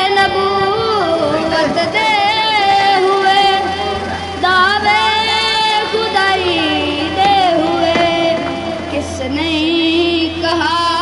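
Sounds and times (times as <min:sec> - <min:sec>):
boy singing solo: 0:00.0 - 0:11.0.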